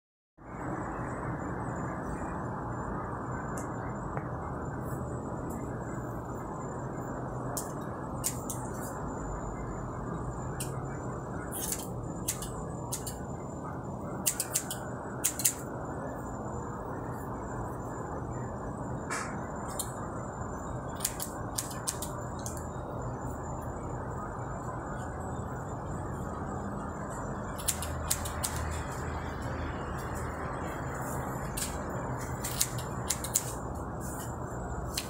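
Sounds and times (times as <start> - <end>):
steady background rush: 0.4 - 35.0
scissors snipping hair: 7.6 - 8.6, 11.5 - 13.2, 14.2 - 15.6, 21.0 - 22.6, 27.6 - 28.8, 31.5 - 33.6.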